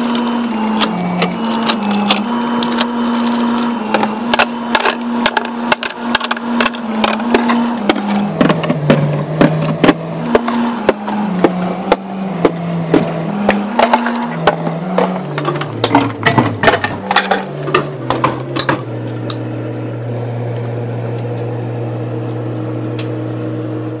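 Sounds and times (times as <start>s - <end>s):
bottles clinking and knocking: 6.6s - 18.9s.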